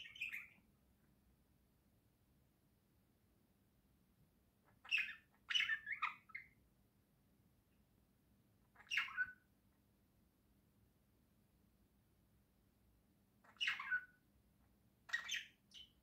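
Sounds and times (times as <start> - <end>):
budgerigars chirping: 0.0 - 0.6, 4.6 - 6.6, 8.7 - 9.4, 13.4 - 14.2, 15.1 - 16.0.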